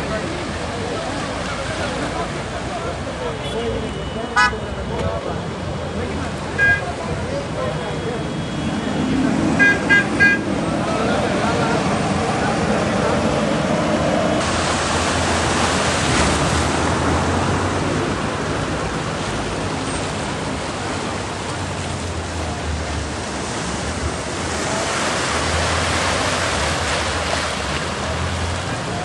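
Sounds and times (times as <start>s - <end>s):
floodwater rushing and splashing: 0.0s - 29.0s.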